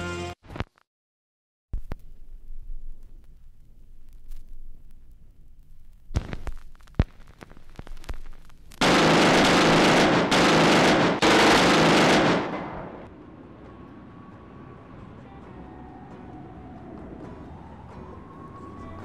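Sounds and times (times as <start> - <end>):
machine-gun fire: 8.8 - 13.1.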